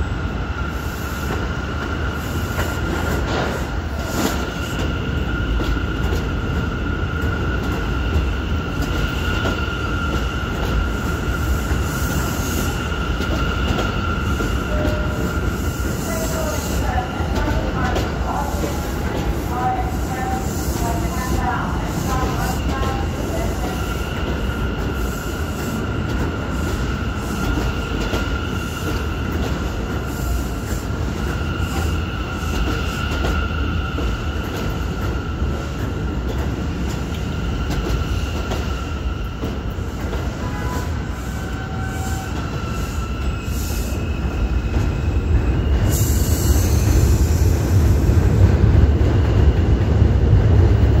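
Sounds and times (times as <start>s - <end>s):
train wheels rumbling on rails: 0.0s - 51.0s.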